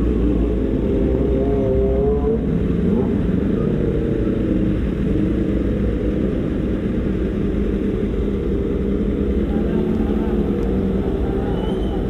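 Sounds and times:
motorcycle engines idling: 2.9s - 12.0s.

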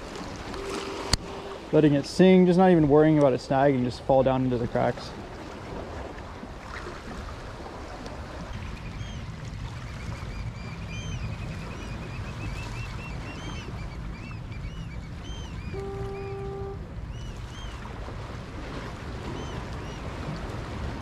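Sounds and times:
wind: 0.0s - 21.0s
short high chirps: 0.6s - 1.7s, 15.7s - 16.8s.

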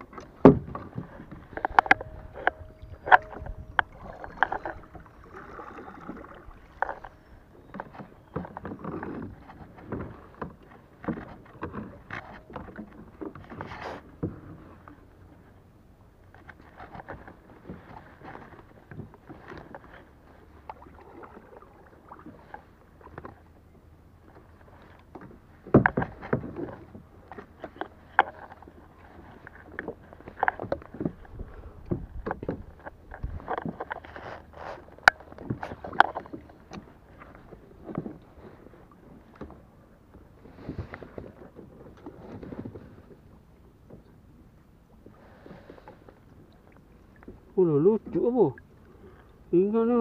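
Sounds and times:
faint water wash: 0.0s - 15.6s
pedal knocks and clunks: 0.1s - 5.0s.

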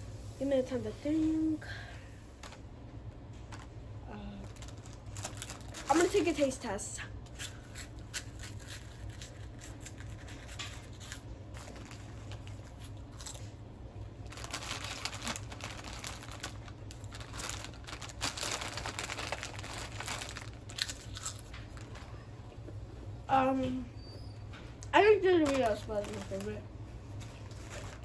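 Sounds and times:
plastic chip bags crinkling: 3.4s - 6.7s, 7.5s - 13.6s, 14.2s - 22.2s, 24.8s - 28.0s
chips being eaten: 14.3s - 22.0s.

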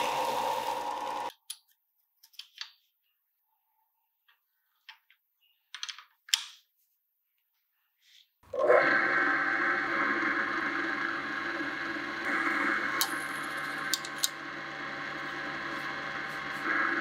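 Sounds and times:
belt grinder grinding steel: 0.0s - 1.3s, 9.8s - 17.0s
drill press motor running: 0.0s - 1.3s, 8.5s - 17.0s.

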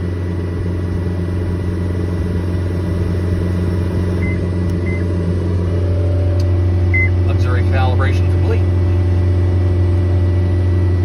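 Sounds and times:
diesel engine at full throttle: 0.0s - 11.0s
short high beeps: 6.9s - 7.2s.

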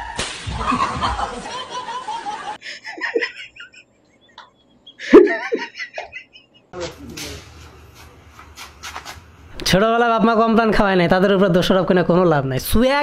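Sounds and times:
man laughing: 0.6s - 7.0s.

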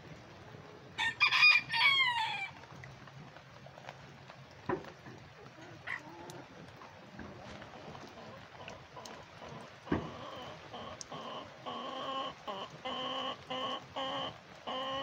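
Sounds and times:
rooster crowing: 1.0s - 2.6s.

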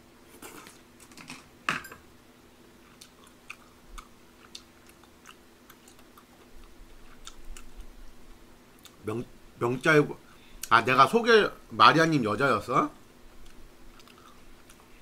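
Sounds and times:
person chewing: 2.8s - 8.0s, 13.4s - 15.0s.

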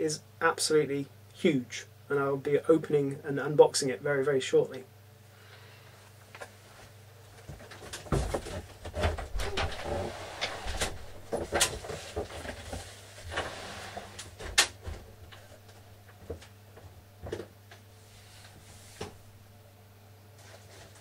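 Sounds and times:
steady low hum: 0.0s - 21.0s
knocks and clatter of handling: 7.3s - 10.0s, 10.7s - 13.4s
door or cupboard: 8.0s - 12.6s.

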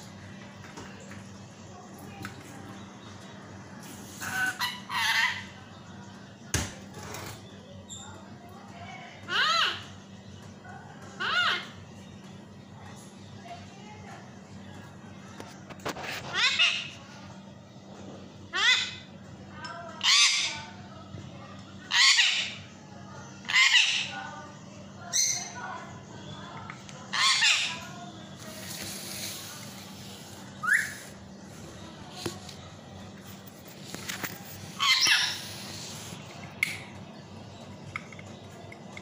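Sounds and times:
parakeet squawking: 4.2s - 5.5s, 16.3s - 16.9s, 18.5s - 19.1s, 20.0s - 20.7s, 21.9s - 22.6s, 23.5s - 24.2s, 27.1s - 27.8s, 30.6s - 31.1s, 34.8s - 36.1s.

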